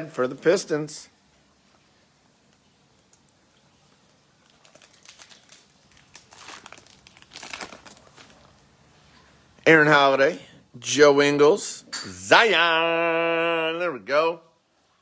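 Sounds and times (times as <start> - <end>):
foil wrapper tearing and crinkling: 4.4 - 8.6.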